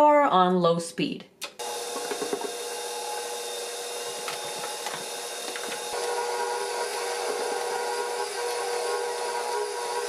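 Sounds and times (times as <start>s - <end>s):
stand mixer motor humming: 1.6s - 10.0s.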